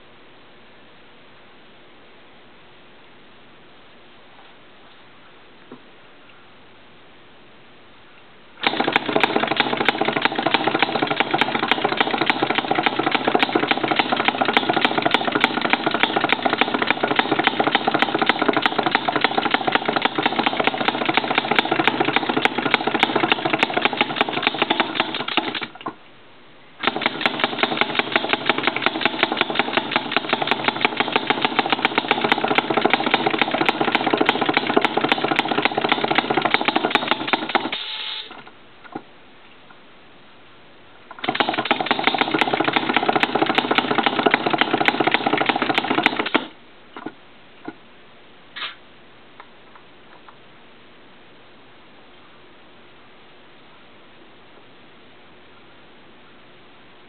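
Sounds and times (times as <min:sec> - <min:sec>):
model two-stroke engine running: 0:08.6 - 0:25.7, 0:26.8 - 0:37.7, 0:41.2 - 0:46.5.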